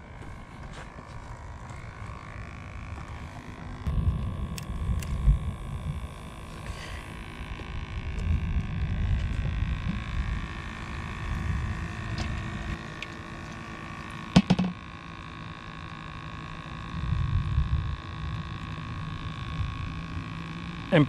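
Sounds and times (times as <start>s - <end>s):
faint high-pitched hum: 0.0s - 21.0s
wind rumble on microphone: 3.8s - 12.8s, 16.8s - 20.3s.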